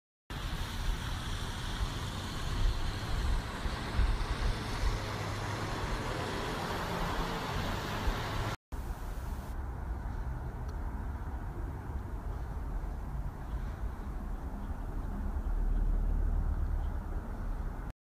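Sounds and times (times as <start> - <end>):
even hiss: 0.3 - 9.6.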